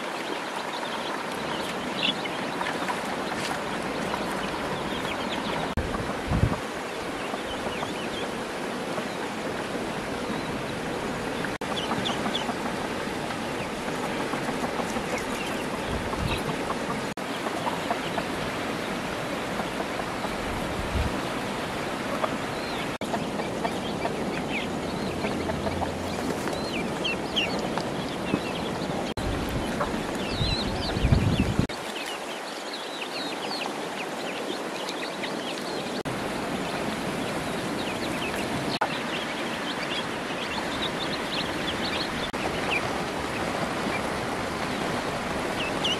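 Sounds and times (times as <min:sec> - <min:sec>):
high peeps of young birds: 0:11.6 - 0:12.8, 0:13.6 - 0:18.3, 0:22.1 - 0:28.8
poultry clucking: 0:11.6 - 0:20.8, 0:22.0 - 0:28.7.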